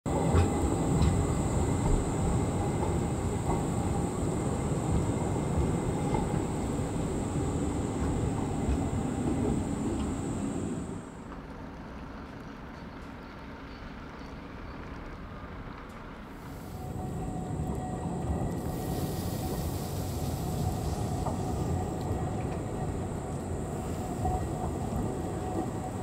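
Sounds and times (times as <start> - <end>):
tram rumbling on rails: 0.0 - 15.0, 16.4 - 26.0
high whine: 0.1 - 11.3.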